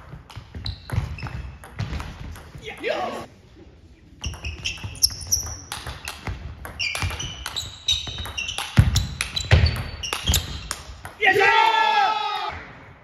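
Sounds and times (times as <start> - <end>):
shoe soles squeaking on floor: 0.0 - 1.9, 4.2 - 10.9.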